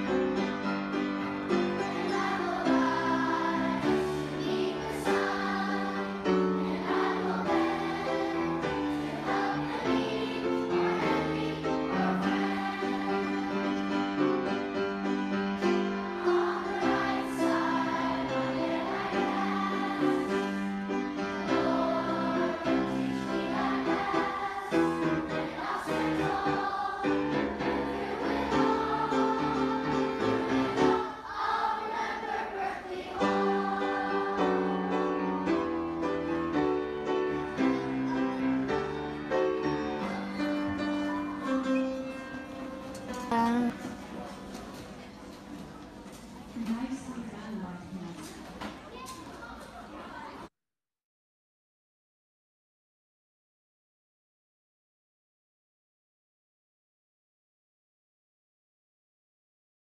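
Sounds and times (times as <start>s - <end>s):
choir singing long notes: 1.1s - 41.4s.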